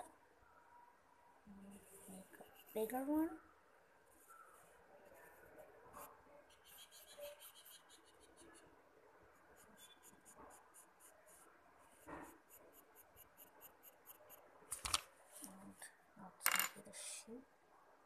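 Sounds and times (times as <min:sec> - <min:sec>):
pencil scratching on paper: 0:01.7 - 0:03.2, 0:04.3 - 0:14.5.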